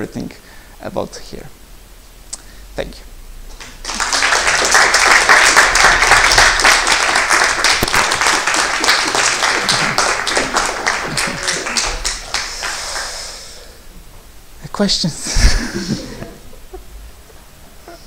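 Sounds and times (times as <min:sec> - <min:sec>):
audience applauding: 0:03.6 - 0:13.5.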